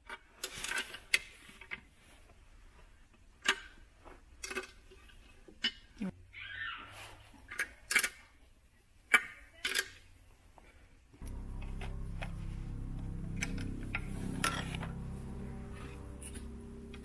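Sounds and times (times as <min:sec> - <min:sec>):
steady low hum: 0:11.2 - 0:17.0.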